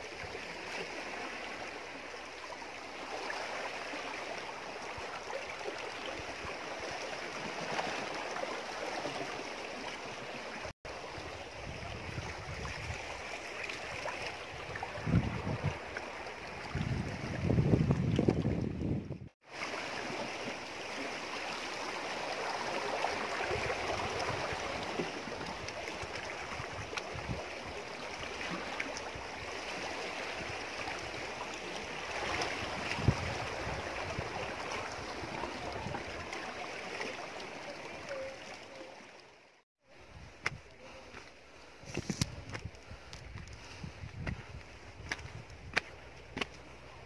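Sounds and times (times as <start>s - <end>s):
seawater surging among boulders: 0.0s - 47.0s.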